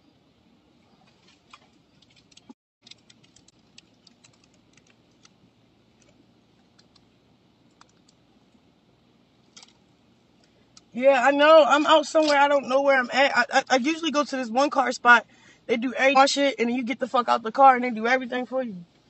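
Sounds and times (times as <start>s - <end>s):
light clicks and taps: 6.0s - 7.1s.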